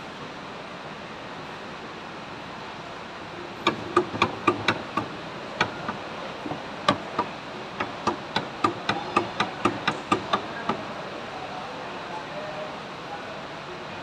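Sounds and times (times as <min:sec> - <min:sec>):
metal-on-metal taps: 0:03.6 - 0:10.9.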